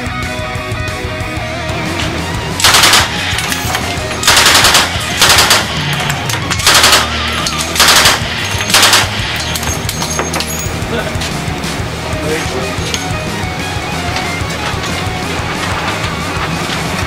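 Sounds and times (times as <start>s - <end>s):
submachine gun automatic bursts: 2.6s - 6.0s, 6.6s - 9.5s.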